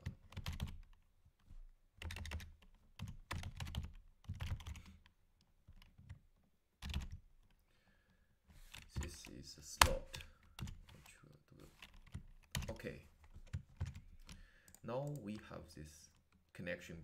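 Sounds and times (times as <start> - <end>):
typing on a keyboard: 0.0 - 1.0, 2.0 - 5.1, 6.8 - 7.6, 11.8 - 12.8, 13.4 - 15.6.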